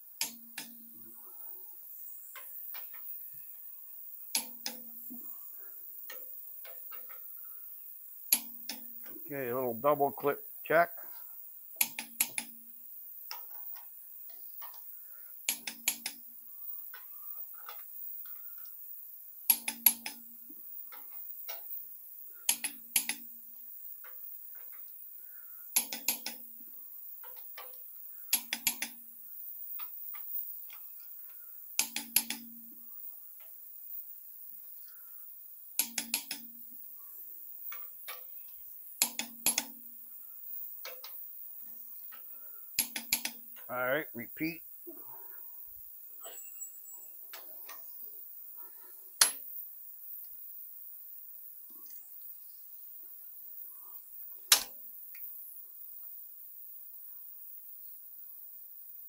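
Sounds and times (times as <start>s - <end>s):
faint ratchet ticks: 0.1s - 1.5s, 2.2s - 44.5s, 54.2s - 59.0s
torque wrench clicking: 0.2s - 0.9s, 2.3s - 5.4s, 6.0s - 9.7s, 11.8s - 12.6s, 13.2s - 25.0s, 25.7s - 34.0s, 35.8s - 36.9s, 37.5s - 43.8s, 49.2s - 49.5s, 54.5s - 55.3s.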